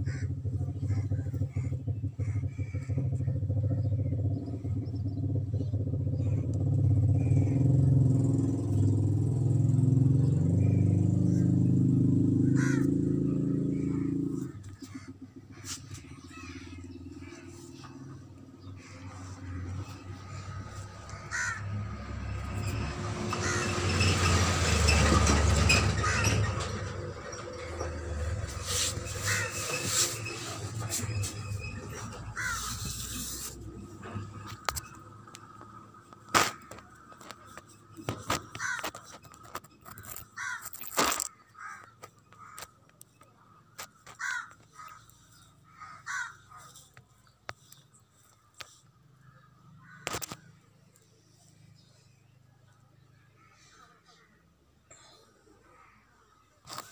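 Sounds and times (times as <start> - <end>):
crows cawing: 0.0 - 3.4, 12.4 - 22.2, 23.3 - 24.0, 25.7 - 47.7, 49.2 - 50.6, 53.4 - 54.4, 55.6 - 56.9
sharp clicks or knocks: 34.0 - 43.0.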